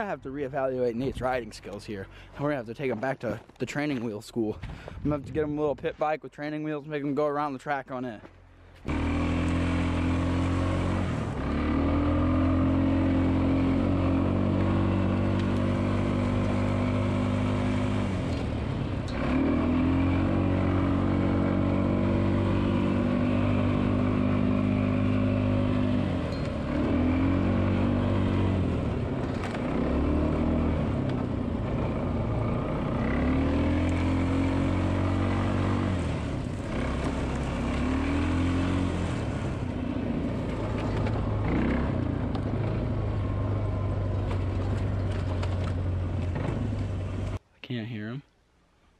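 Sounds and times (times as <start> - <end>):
atv engine revving: 8.8 - 47.4.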